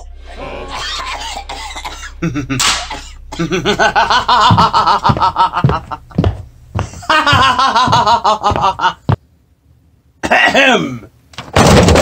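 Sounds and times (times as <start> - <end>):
man laughing like a villain: 2.1 - 9.2.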